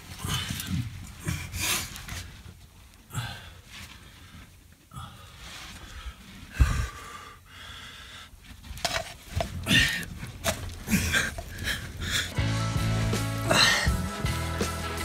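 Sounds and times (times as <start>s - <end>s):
hard breathing: 0.0s - 14.2s
scraping on rock and gravel: 8.4s - 13.7s.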